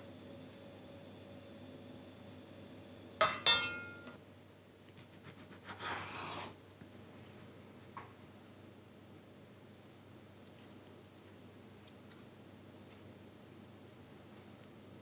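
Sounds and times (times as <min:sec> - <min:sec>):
metal ladle clinking on ceramic bowl: 0:03.2 - 0:04.2.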